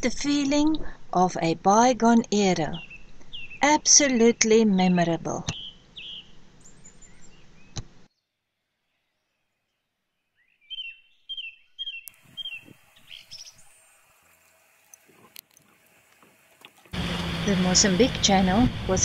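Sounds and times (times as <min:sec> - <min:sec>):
birds chirping: 0:02.4 - 0:07.9, 0:09.7 - 0:19.0.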